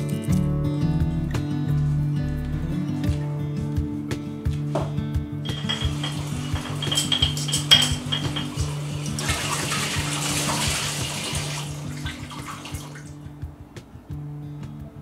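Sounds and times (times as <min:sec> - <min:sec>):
glass clinking: 0:05.4 - 0:08.9
tap water running onto bottle: 0:05.5 - 0:13.1.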